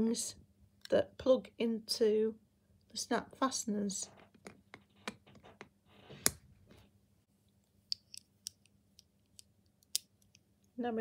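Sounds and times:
light ticks of handled pieces: 7.5s - 10.8s.

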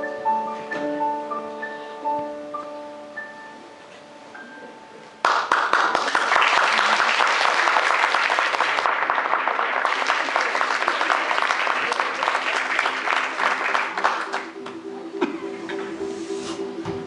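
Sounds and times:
audience applauding: 5.2s - 14.6s.

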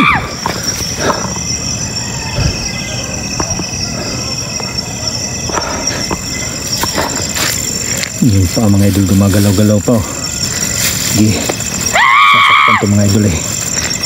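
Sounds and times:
crickets trilling: 0.0s - 14.0s
faint clicks and rustles: 5.4s - 12.5s.

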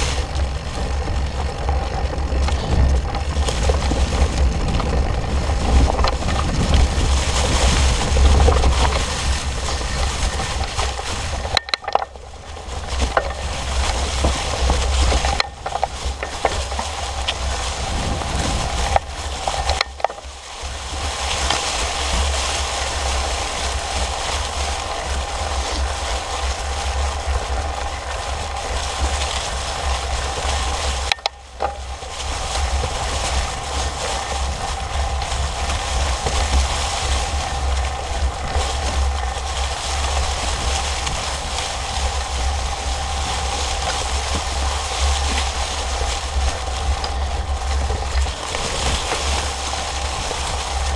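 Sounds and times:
bike tyres rolling over dry leaves: 0.0s - 50.9s
wind buffeting microphone: 0.0s - 50.9s.

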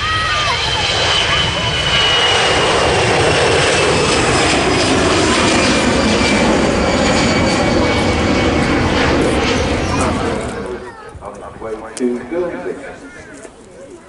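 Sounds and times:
jet engine roar: 0.0s - 14.0s.

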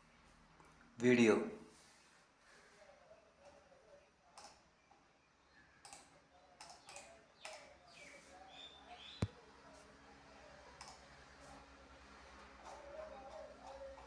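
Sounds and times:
faint clicks and taps: 4.3s - 5.1s, 5.8s - 7.7s.

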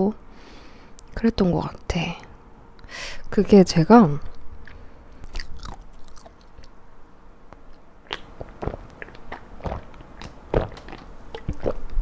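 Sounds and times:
person gulping beer: 8.1s - 12.0s.

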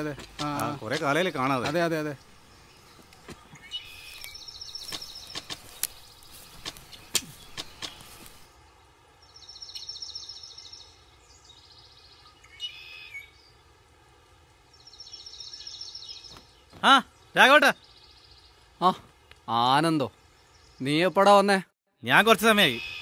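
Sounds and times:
sharp clicks: 0.0s - 2.0s, 4.2s - 6.0s, 6.6s - 8.1s
bird short call: 22.6s - 23.0s.

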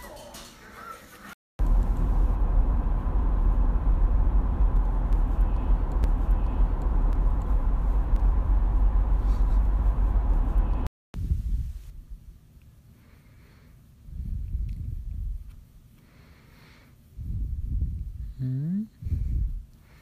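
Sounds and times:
car engine and road noise: 1.6s - 10.9s.

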